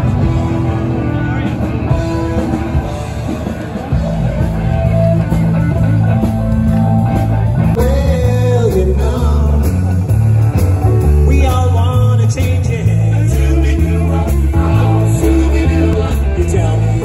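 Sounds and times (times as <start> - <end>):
bass line: 0.0 - 17.0
drums: 0.0 - 17.0
electric guitar: 0.0 - 17.0
rock band playing: 0.0 - 17.0
person singing: 7.7 - 10.4, 11.1 - 17.0.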